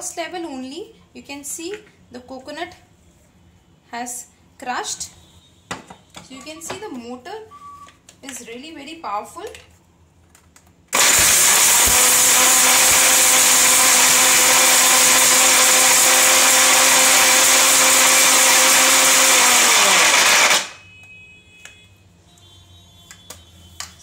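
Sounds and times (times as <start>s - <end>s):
mixer grinder grinding coconut: 11.0s - 20.8s
motor winding down: 11.0s - 20.8s.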